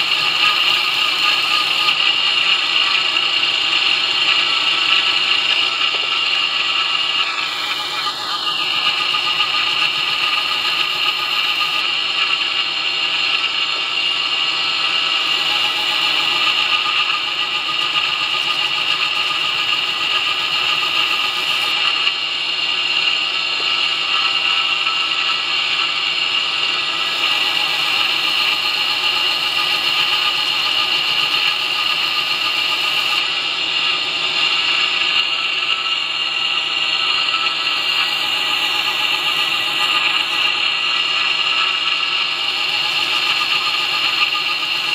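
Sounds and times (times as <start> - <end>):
belt grinder whining: 0.0 - 44.9.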